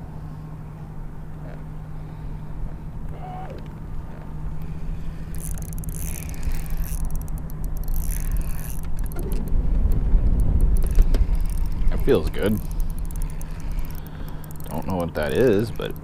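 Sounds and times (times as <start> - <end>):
boat motor humming: 0.0 - 16.0
low rumble: 3.8 - 14.6.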